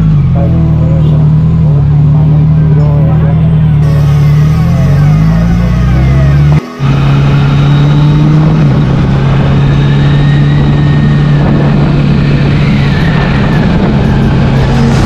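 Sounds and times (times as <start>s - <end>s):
motorcycle engine cruising: 0.0s - 15.0s
wind noise: 6.9s - 15.0s.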